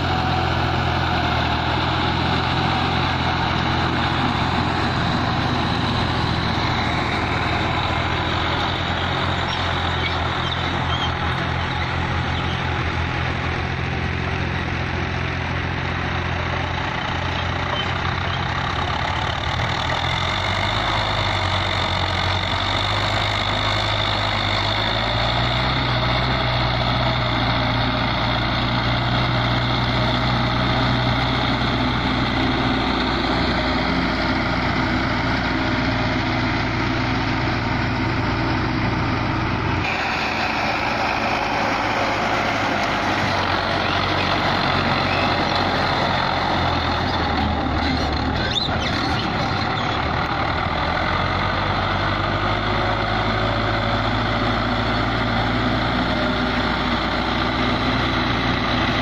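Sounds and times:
diesel tractor engines under load: 0.0 - 59.0.

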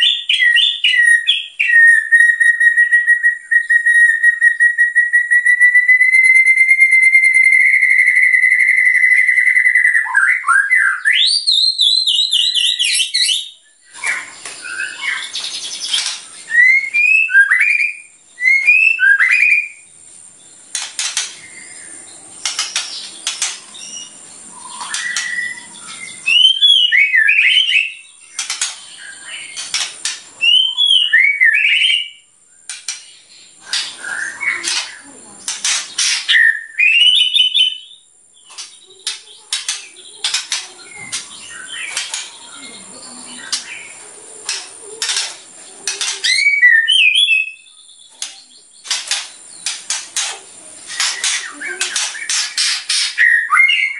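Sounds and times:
bird singing whistled phrases: 0.0 - 19.9, 23.8 - 29.7, 30.4 - 32.3, 33.6 - 35.1, 36.0 - 45.1, 46.0 - 48.8, 50.9 - 53.9
bird clicking and chattering: 20.7 - 21.8, 22.4 - 25.4, 28.3 - 30.4, 32.7 - 36.4, 38.5 - 42.5, 43.3 - 46.6, 48.1 - 53.2.

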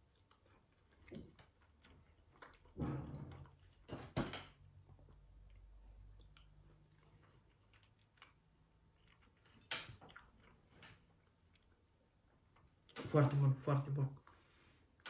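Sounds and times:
person chewing: 0.0 - 3.8, 4.8 - 13.0.

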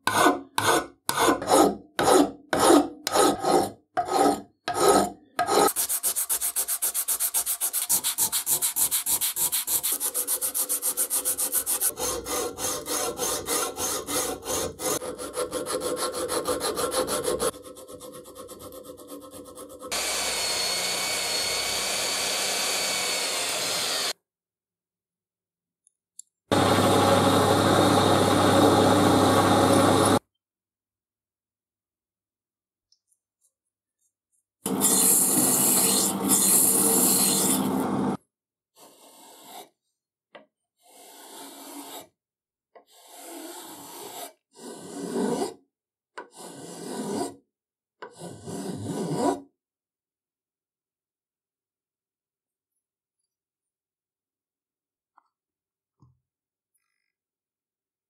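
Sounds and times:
hand file rasping on aluminium: 0.0 - 20.0, 34.7 - 37.7, 40.9 - 42.1, 42.8 - 45.6, 46.2 - 47.4, 48.0 - 49.4.

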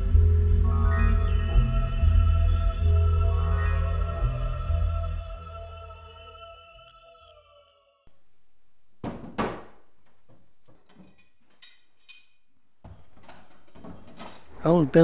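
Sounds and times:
ambient music: 0.0 - 7.9
sharp wooden thunks: 9.0 - 10.4.

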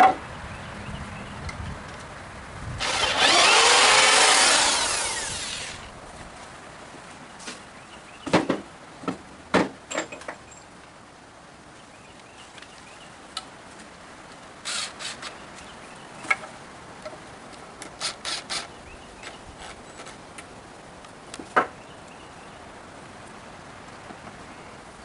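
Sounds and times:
wood scraping on wood: 2.8 - 5.9.

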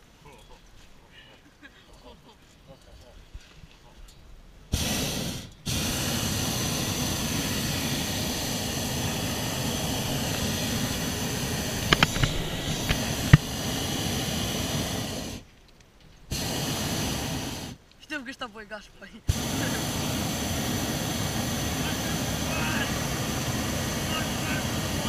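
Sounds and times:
propane burner blasts: 4.7 - 15.5, 16.3 - 17.8, 19.3 - 25.0
sharp clicks: 11.8 - 13.4.

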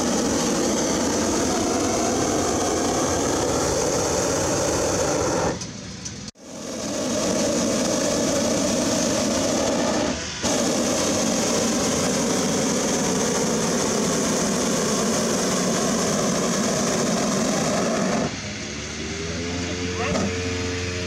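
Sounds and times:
propane burner blasting: 0.0 - 21.0.

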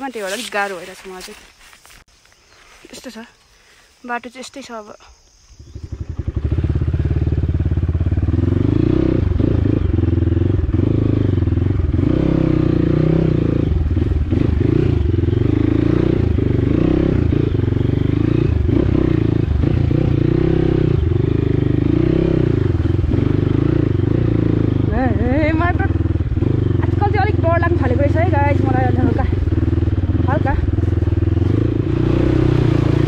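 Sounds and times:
dirt bike engine revving: 5.6 - 33.0.

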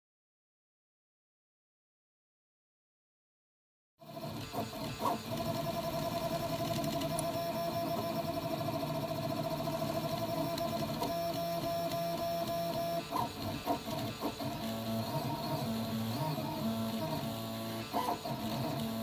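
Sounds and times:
mechanical running noise: 4.1 - 19.0.

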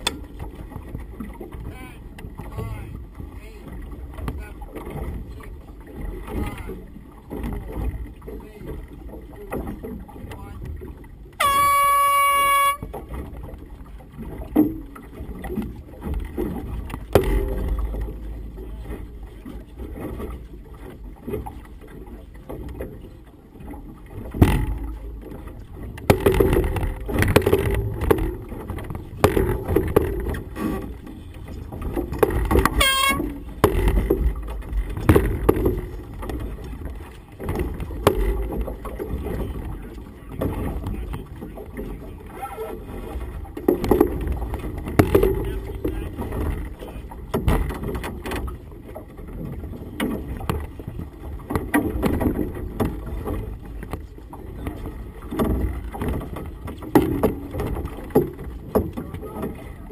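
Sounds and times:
air horn blast: 11.4 - 12.9, 32.7 - 33.4.

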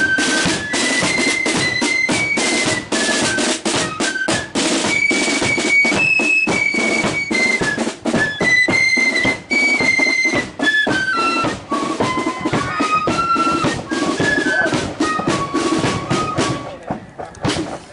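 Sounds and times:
flutes playing in unison: 0.0 - 17.6
side drums: 0.0 - 17.9.

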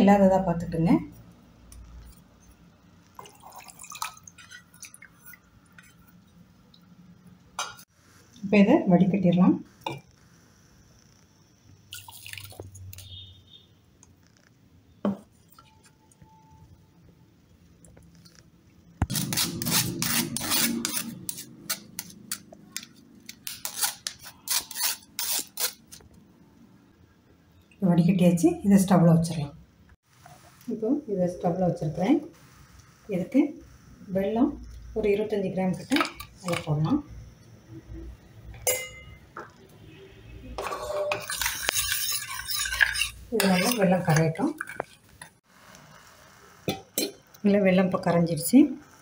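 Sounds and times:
liquid pouring and splashing: 3.1 - 6.4, 11.9 - 13.1
spoon scraping wire strainer: 19.1 - 26.0, 40.6 - 45.3.

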